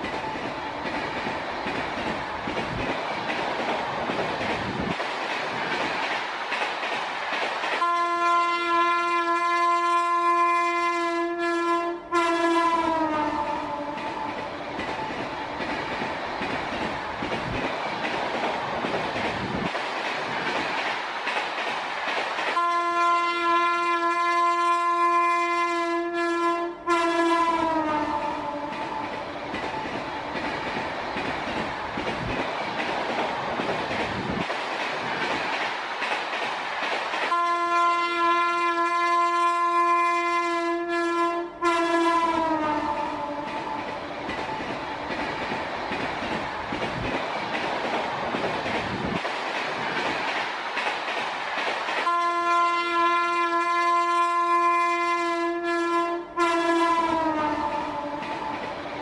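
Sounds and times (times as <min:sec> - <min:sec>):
train wheels rumbling on track: 0:00.0 - 0:59.0
train horn blasts: 0:07.8 - 0:14.4, 0:22.6 - 0:29.1, 0:37.3 - 0:43.8, 0:52.0 - 0:58.3.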